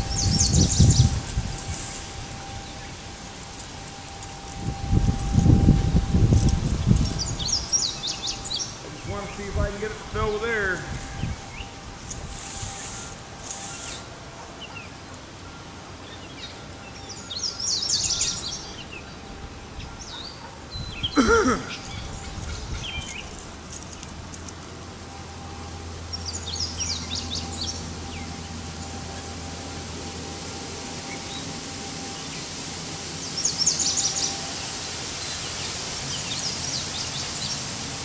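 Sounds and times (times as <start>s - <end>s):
fabric rustling on grass: 0.0s - 15.3s
low steady hum: 0.0s - 38.0s
songbirds chirping: 0.0s - 38.0s
bird call: 19.8s - 24.0s.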